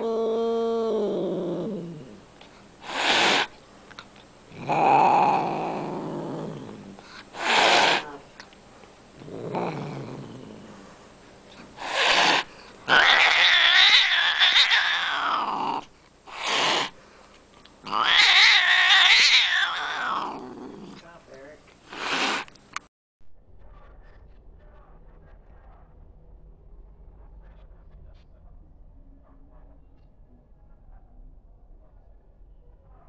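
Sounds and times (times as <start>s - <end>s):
cat growling and yowling: 0.0s - 2.2s, 4.5s - 8.2s, 9.2s - 10.8s, 11.8s - 17.0s, 17.8s - 21.0s
cat hissing: 2.8s - 3.6s, 4.5s - 8.3s, 9.2s - 10.9s, 11.5s - 17.0s, 17.8s - 21.1s, 21.8s - 22.6s.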